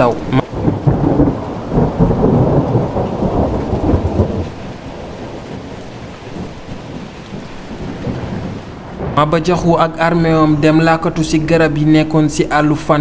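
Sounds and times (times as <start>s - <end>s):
rain: 0.0s - 13.0s
thunder rumbling: 0.0s - 13.0s.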